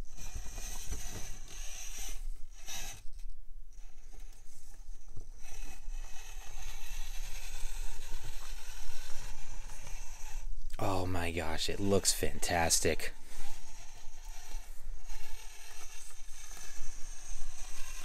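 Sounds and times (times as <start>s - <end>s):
small electric motor whine: 0.0s - 18.0s.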